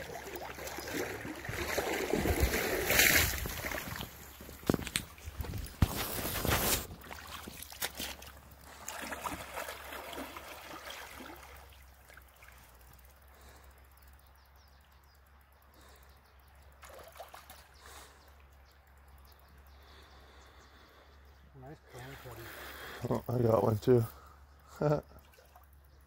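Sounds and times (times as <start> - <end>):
water lapping on stony shore: 0.0 - 12.8.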